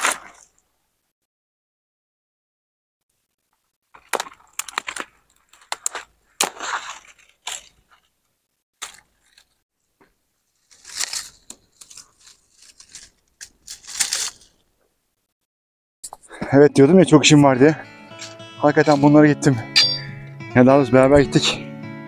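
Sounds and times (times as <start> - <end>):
dry branches cracking and snapping: 3.9 - 8.1, 8.8 - 9.6, 10.6 - 14.5.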